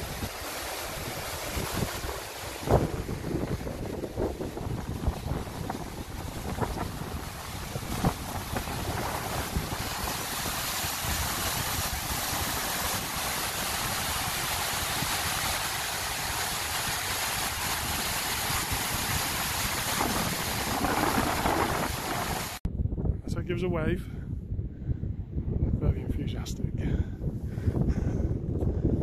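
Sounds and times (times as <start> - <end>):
water rushing down spillway: 0.0 - 22.6
wind buffeting microphone: 0.0 - 29.0.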